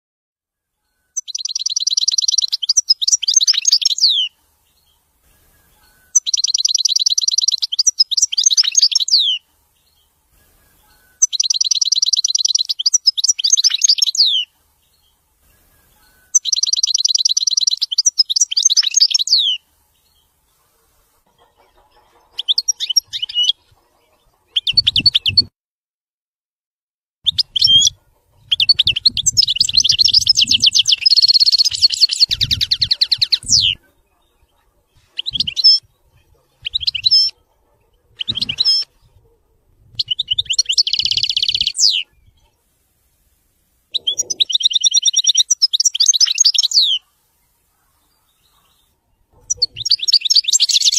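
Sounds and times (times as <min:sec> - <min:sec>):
goldfinch singing: 0:01.2 - 0:10.1, 0:10.7 - 0:15.1, 0:15.7 - 0:20.3, 0:21.4 - 0:25.5, 0:27.2 - 0:37.4, 0:38.2 - 0:39.0, 0:40.0 - 0:42.5, 0:43.9 - 0:47.0, 0:48.1 - 0:50.9.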